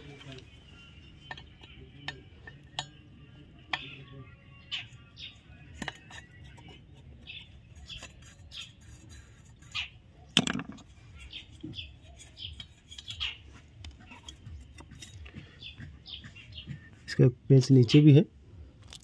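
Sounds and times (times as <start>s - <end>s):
screwdriver scraping screw heads: 5.7s - 9.9s.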